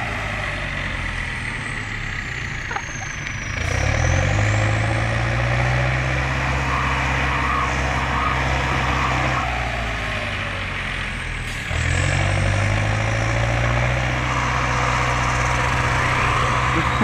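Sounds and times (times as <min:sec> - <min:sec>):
tractor diesel engine straining: 0:00.0 - 0:17.0
car engine revving hard: 0:03.5 - 0:10.6, 0:11.7 - 0:17.0.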